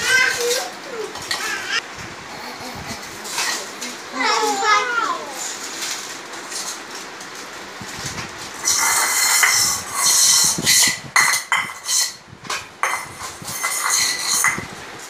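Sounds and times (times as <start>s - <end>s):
metal plates and bowls clinking: 2.9s - 4.0s, 8.6s - 14.7s.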